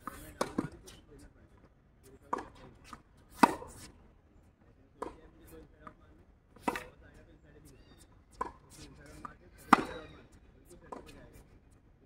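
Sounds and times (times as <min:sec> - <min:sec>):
tennis ball hit by racket: 0:00.0 - 0:00.8, 0:02.3 - 0:03.9, 0:06.6 - 0:07.0, 0:08.3 - 0:10.2.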